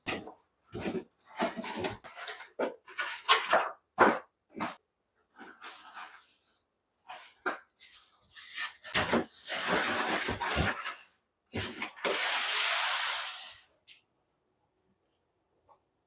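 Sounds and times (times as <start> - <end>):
cardboard rustling and scraping: 0.1 - 12.6.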